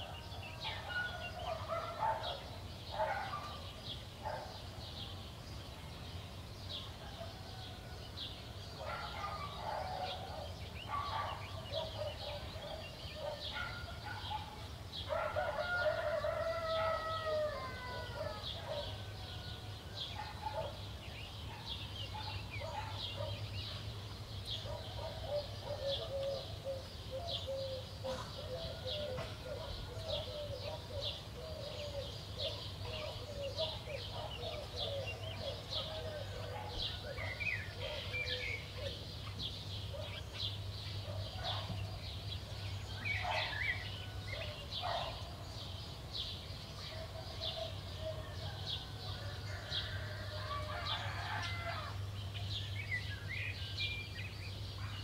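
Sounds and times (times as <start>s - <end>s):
songbirds chirping: 0.0s - 55.0s
rooster crowing: 15.2s - 19.9s, 48.2s - 52.0s.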